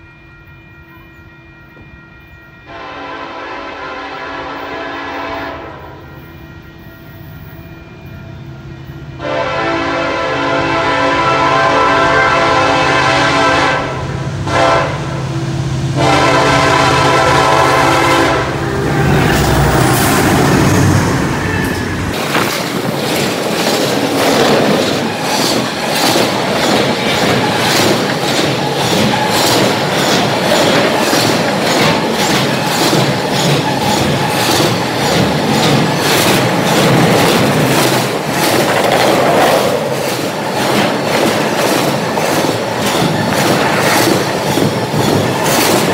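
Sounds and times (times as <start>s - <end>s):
train rumbling past: 0.0s - 45.9s
locomotive air horn: 1.8s - 7.8s, 9.1s - 22.0s
locomotive engine passing: 10.8s - 45.9s
wheels clacking over rail joints: 19.1s - 45.9s.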